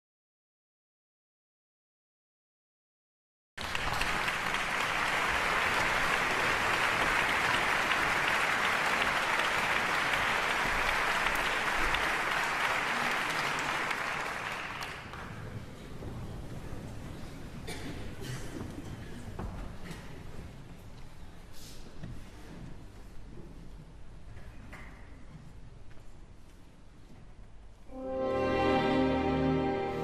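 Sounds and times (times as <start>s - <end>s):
audience applauding: 3.6s - 15.6s.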